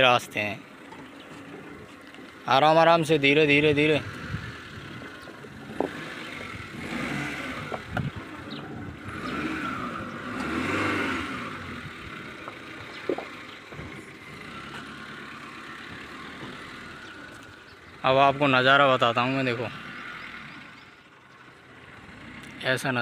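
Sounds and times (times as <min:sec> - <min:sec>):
van engine pulling: 0:00.0 - 0:23.0.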